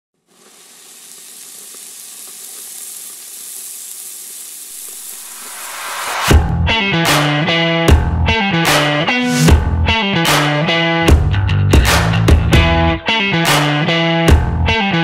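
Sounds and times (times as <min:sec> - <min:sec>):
meat sizzling: 0:00.2 - 0:06.3
electric guitar music: 0:04.9 - 0:15.0.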